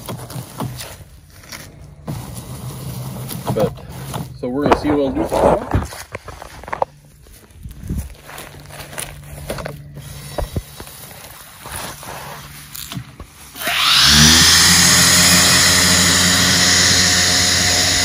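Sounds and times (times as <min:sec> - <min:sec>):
low hum: 0:06.3 - 0:18.0
circular saw motor whining: 0:13.5 - 0:18.0.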